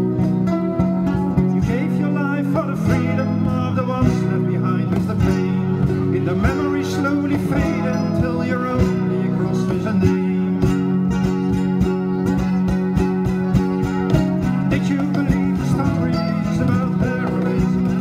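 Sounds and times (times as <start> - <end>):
cajon beat: 0.0 - 18.0
plucked guitar: 0.0 - 18.0
kora: 7.4 - 18.0.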